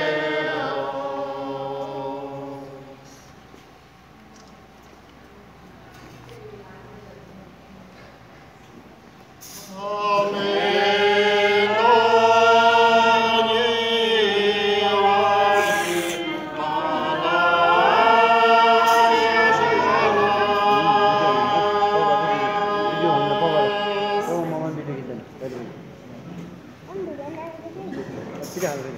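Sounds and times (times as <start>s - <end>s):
group singing unaccompanied: 0.0s - 3.3s, 9.4s - 24.7s.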